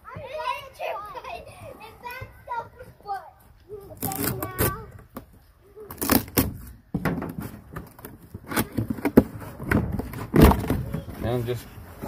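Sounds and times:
cardboard tearing and scraping: 4.0 - 4.8, 5.9 - 6.6.

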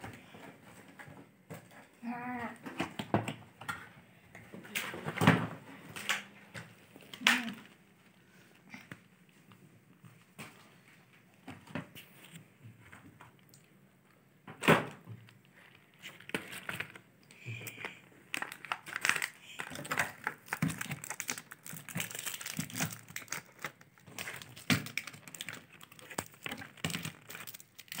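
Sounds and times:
plastic clicks and rustles: 2.6 - 7.8, 14.6 - 28.0
wrappers crinkling: 17.8 - 28.0.

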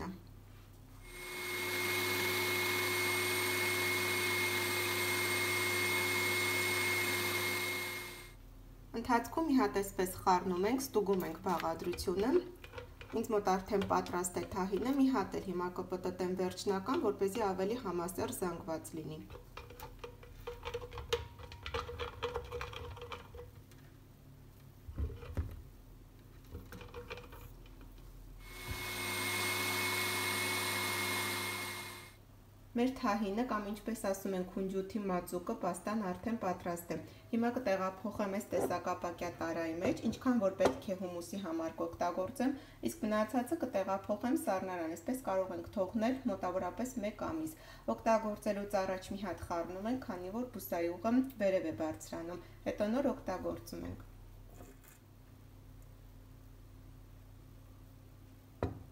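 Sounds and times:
blender motor grinding: 1.1 - 8.3, 28.4 - 32.2.

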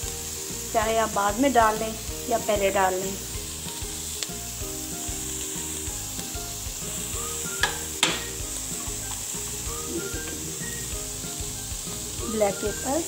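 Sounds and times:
vegetables sizzling in a pan: 0.0 - 13.0
spoon knocking against pan: 7.6 - 8.4.

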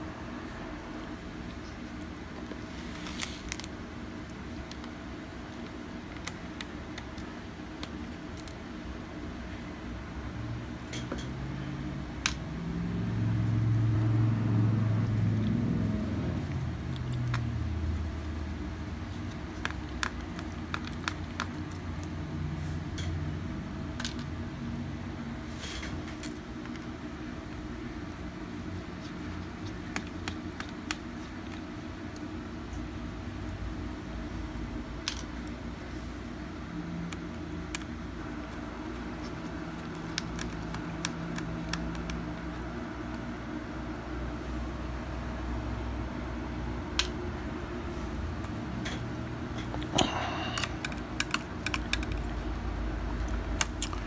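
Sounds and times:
steady low hum: 0.0 - 54.0
small clicks and taps: 48.8 - 52.4.

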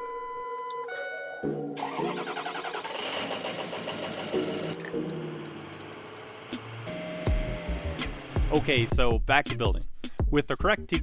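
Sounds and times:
truck engine cranking and idling: 1.8 - 8.6.

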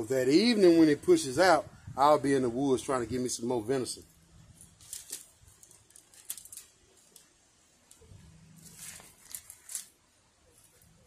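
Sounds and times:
aluminum foil crinkling: 4.5 - 11.0.

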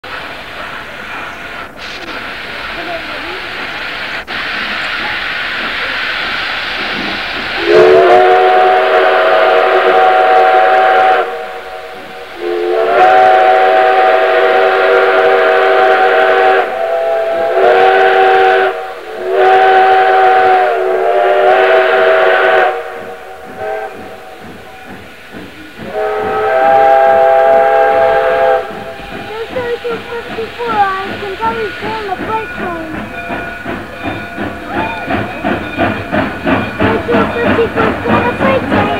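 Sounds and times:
steam hissing: 0.0 - 38.9
steam whistle blasts: 7.6 - 24.5, 25.8 - 29.1.

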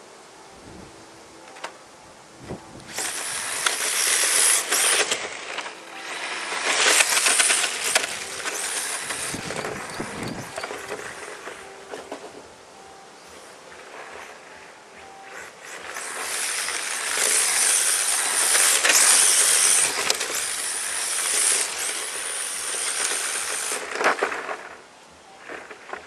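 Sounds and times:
remote control car motor: 2.8 - 12.2, 15.2 - 24.8
tyres hissing on asphalt: 2.9 - 11.3, 15.3 - 24.8.

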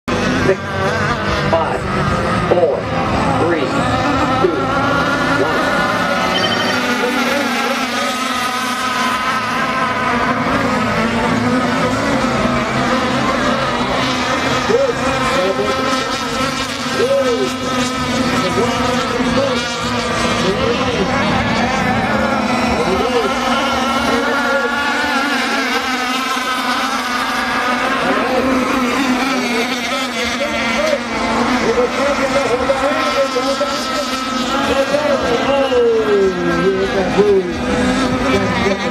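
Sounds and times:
model boat motors buzzing: 0.1 - 38.9.

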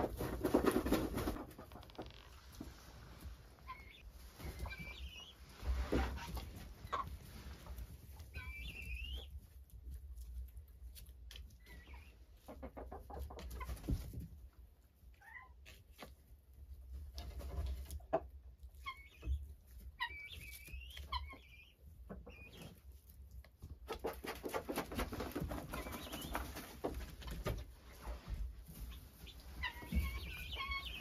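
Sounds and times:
chickens clucking: 0.0 - 31.0
rustling in straw: 2.4 - 11.1
guinea fowl chirping calls: 3.6 - 5.4, 8.3 - 9.4, 18.8 - 22.8, 28.8 - 31.0.

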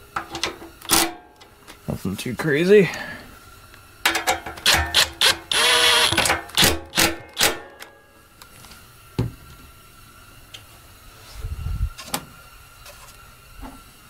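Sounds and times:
hand ratchet clicking: 4.6 - 7.6.

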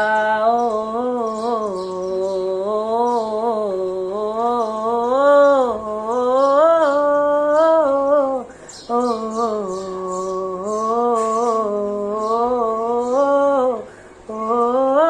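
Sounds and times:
man singing wordlessly: 0.0 - 15.0.

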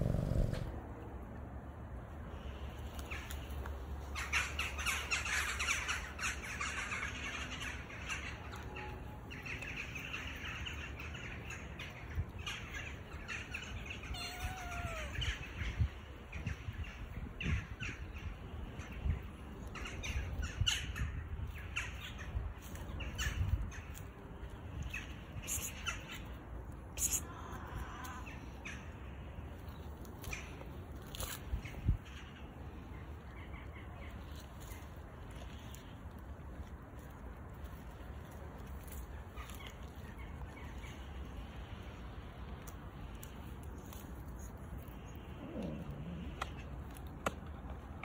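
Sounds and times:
birds chirping and squawking: 0.0 - 0.7, 4.1 - 19.1
cat meow: 14.0 - 15.4.

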